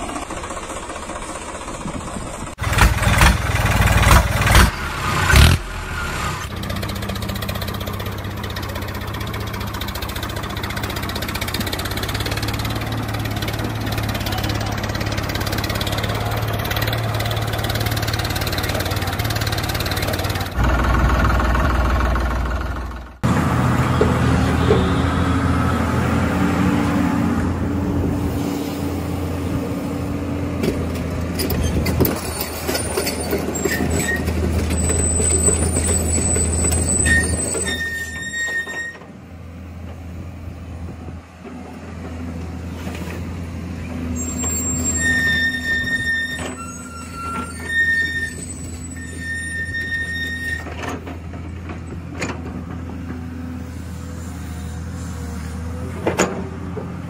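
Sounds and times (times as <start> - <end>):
short high squeaks: 31.4 - 39.1, 44.1 - 51.1.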